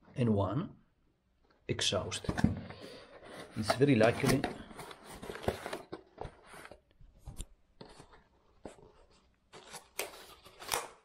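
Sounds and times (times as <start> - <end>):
cardboard and paper rustling: 2.2 - 11.0.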